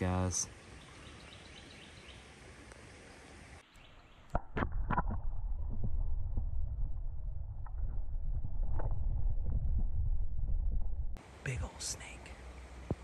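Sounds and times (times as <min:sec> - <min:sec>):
muffled underwater rumble: 0:04.3 - 0:11.2.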